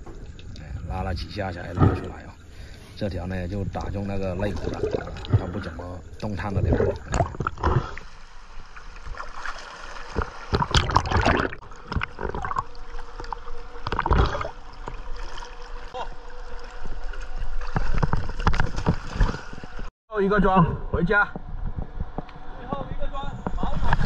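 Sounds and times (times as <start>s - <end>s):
water splashing around swimmer: 4.4s - 19.9s.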